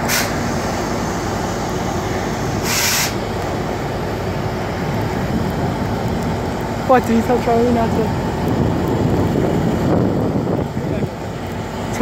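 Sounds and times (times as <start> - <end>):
brief hiss: 0.0 - 0.8, 2.6 - 3.2
diesel locomotive engine running: 0.0 - 12.0
wheels rumbling on rail: 0.0 - 12.0.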